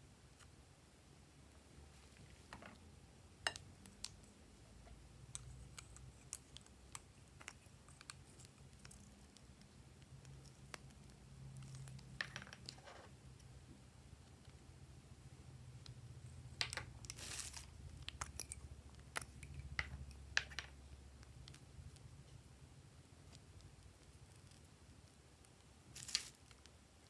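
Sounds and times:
plastic tubes clicking and tapping: 15.8s - 17.2s, 17.9s - 22.0s
rustling: 17.0s - 18.5s, 25.9s - 26.8s.

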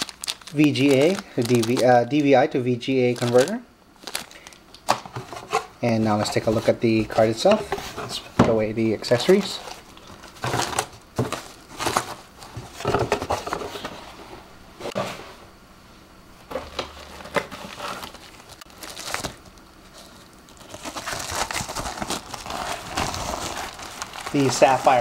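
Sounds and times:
plastic bag crinkling: 0.0s - 4.9s, 16.9s - 25.0s.

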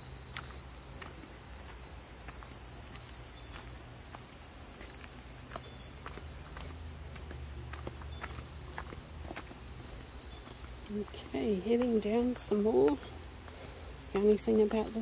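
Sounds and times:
insects droning: 0.0s - 15.0s
footsteps on leaves: 0.3s - 11.1s.

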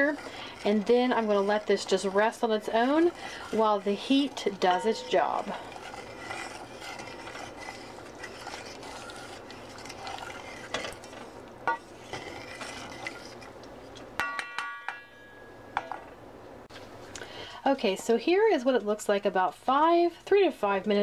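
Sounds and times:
spoon scraping a saucepan: 0.0s - 13.6s.

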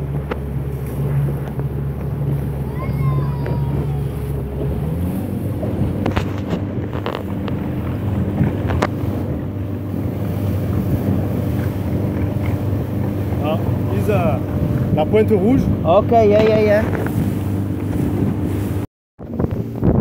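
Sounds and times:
boat engine running: 0.0s - 20.0s
water rushing past hull: 0.0s - 20.0s
wind buffeting microphone: 0.0s - 20.0s.

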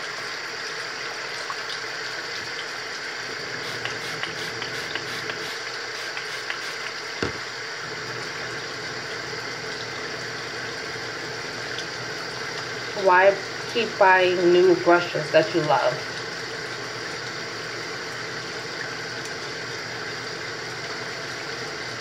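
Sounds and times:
brush rubbing silicone glove: 3.6s - 7.4s
tap running into sink: 3.6s - 7.6s
sharp knock: 7.2s - 7.4s.

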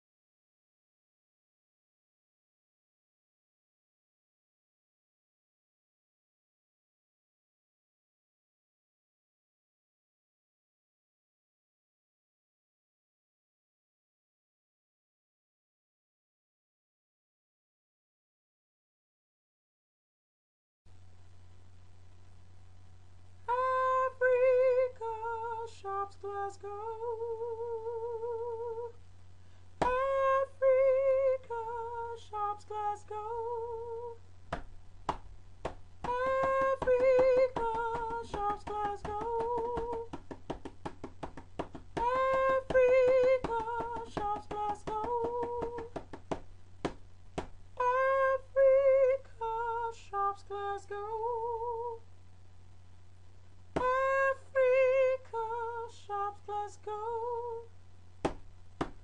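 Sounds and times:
steady low hum: 20.9s - 59.0s
woman singing with vibrato: 23.4s - 29.0s, 29.8s - 34.2s, 36.0s - 46.2s, 47.8s - 52.1s, 53.8s - 57.8s.

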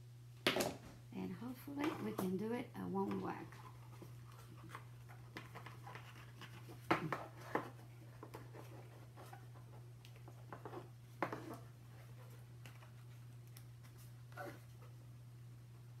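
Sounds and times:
cardboard rustling and scraping: 3.0s - 14.9s.

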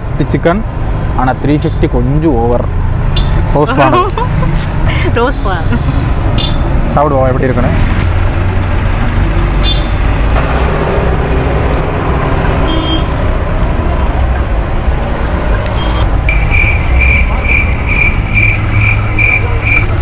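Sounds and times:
road traffic rumble: 0.0s - 20.0s
rapid electronic beeping: 15.8s - 20.0s.

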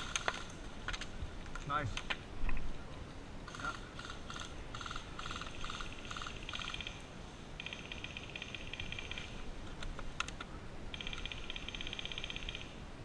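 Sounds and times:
frogs or insects trilling: 3.5s - 9.4s, 10.9s - 12.8s.

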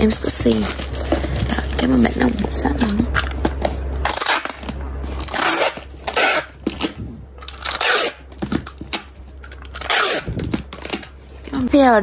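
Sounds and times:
packing tape unrolling: 0.0s - 11.7s
tape dispenser clicks: 0.5s - 11.2s
hands rubbing tape: 9.8s - 10.7s.

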